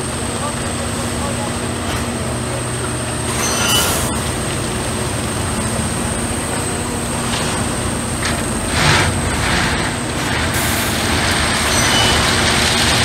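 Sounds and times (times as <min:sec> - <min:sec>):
diesel machinery droning: 0:00.0 - 0:13.0
high squeal: 0:03.3 - 0:04.3, 0:11.5 - 0:12.8.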